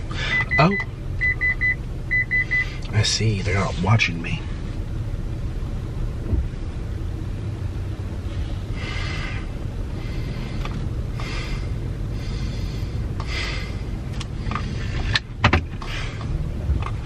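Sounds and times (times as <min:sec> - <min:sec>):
car engine low rumble: 0:00.0 - 0:17.0
breathing: 0:00.1 - 0:00.5, 0:08.3 - 0:15.2, 0:15.8 - 0:16.3.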